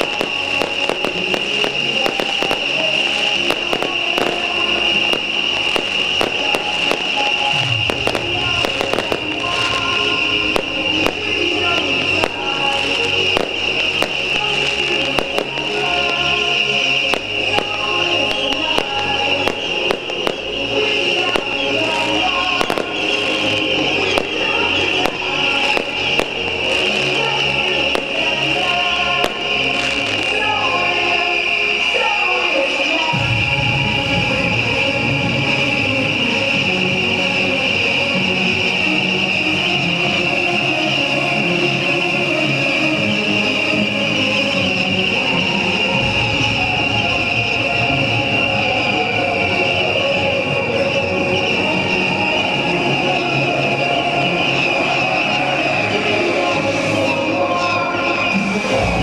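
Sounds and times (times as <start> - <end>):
firework rockets cracking and popping: 0.0 - 33.6.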